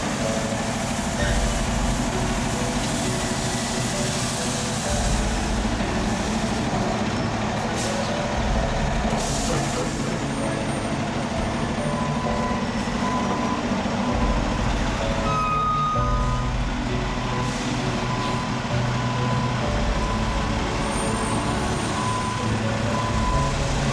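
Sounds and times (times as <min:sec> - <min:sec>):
dump truck diesel engines rumbling: 0:00.0 - 0:23.9
short high tones: 0:15.0 - 0:16.6.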